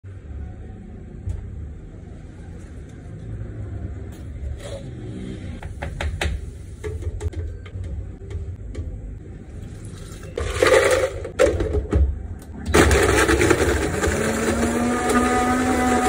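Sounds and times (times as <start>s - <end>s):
blender blending ice: 12.7s - 16.0s.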